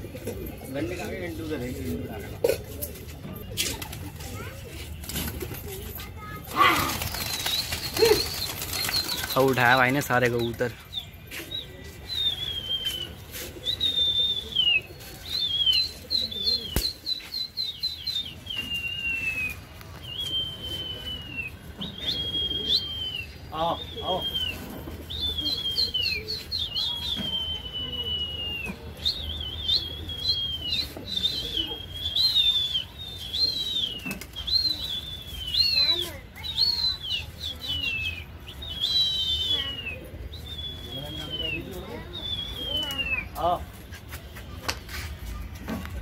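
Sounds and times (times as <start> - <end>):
person whistling shrill notes: 25.4 - 43.3.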